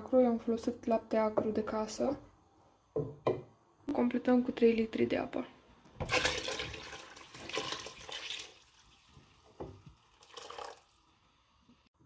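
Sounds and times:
water pouring and splashing: 6.0s - 11.1s.

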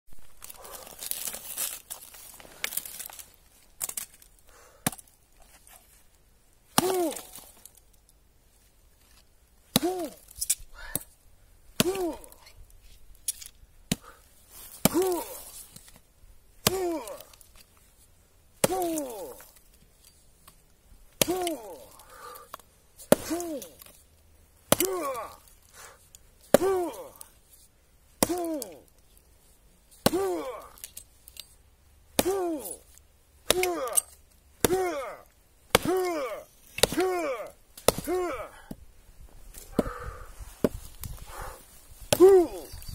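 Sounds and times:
hatchet chopping log: 6.8s - 7.4s, 9.7s - 10.2s, 11.8s - 12.4s, 14.8s - 15.4s, 16.6s - 17.3s, 18.6s - 19.4s, 21.2s - 21.9s, 22.5s - 23.9s, 24.7s - 25.3s, 26.5s - 27.1s, 28.2s - 28.7s, 30.0s - 30.6s, 32.1s - 32.8s, 33.4s - 34.0s, 34.6s - 35.1s, 35.7s - 38.8s, 39.7s - 40.0s, 42.1s - 42.6s
grunts of effort: 6.8s - 7.5s, 9.7s - 10.2s, 11.8s - 12.5s, 14.8s - 15.5s, 16.6s - 17.4s, 18.6s - 19.6s, 21.2s - 22.5s, 23.1s - 23.8s, 24.7s - 25.5s, 26.5s - 27.3s, 28.2s - 28.9s, 30.0s - 30.8s, 32.2s - 32.9s, 33.5s - 38.8s, 39.7s - 40.3s, 41.3s - 42.8s.

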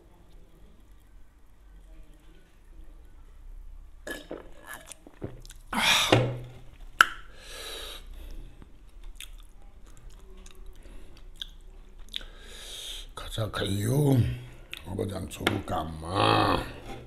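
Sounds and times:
man gulping a drink: 4.0s - 6.4s
man exhaling ahh: 5.8s - 6.2s
soft breathing: 7.3s - 8.9s, 10.6s - 11.4s, 12.2s - 13.2s.

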